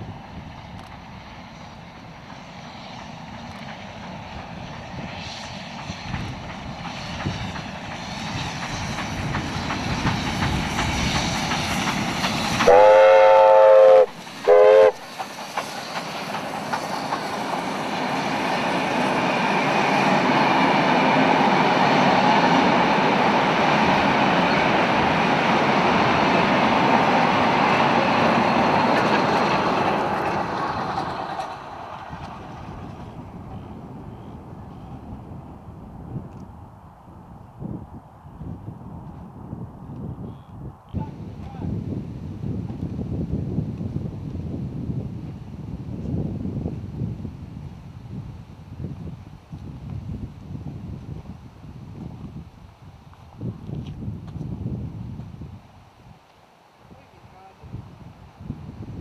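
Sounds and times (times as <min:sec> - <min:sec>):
steam train running: 0:00.0 - 0:36.2
carriages rumbling on rails: 0:00.0 - 0:36.3
steam whistle blasts: 0:12.6 - 0:15.0.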